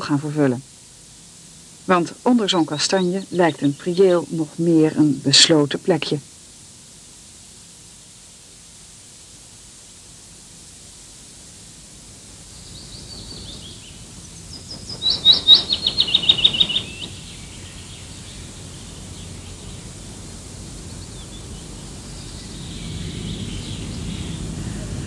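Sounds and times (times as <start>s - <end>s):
steady hiss: 0.0s - 25.0s
songbird singing: 1.4s - 6.2s, 12.3s - 25.0s.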